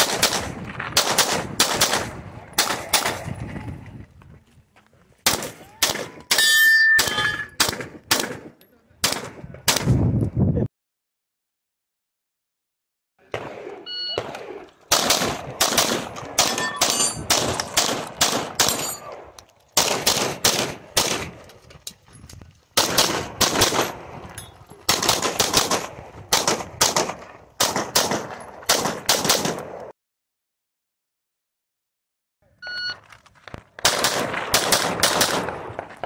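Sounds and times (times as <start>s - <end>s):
shot timer beep: 13.9s - 14.2s.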